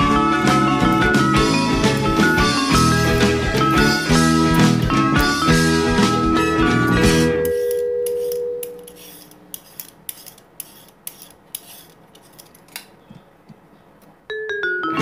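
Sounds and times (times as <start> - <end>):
peeler scraping celery: 7.0 - 12.8.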